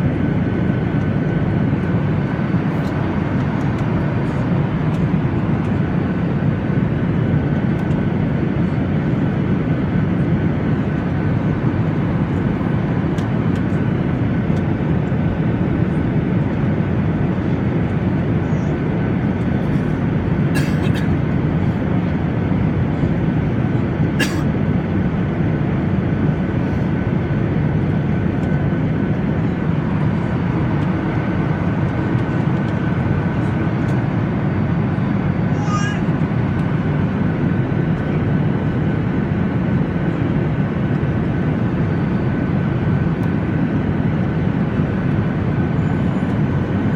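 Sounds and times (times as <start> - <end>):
airliner cabin noise: 0.0 - 46.9.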